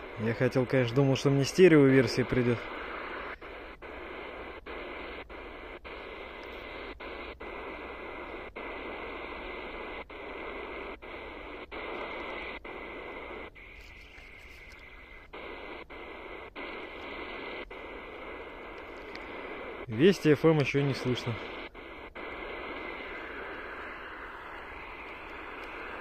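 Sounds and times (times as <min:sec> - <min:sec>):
radio static hissing: 0:00.0 - 0:26.0
faint steady whistle: 0:21.5 - 0:26.0.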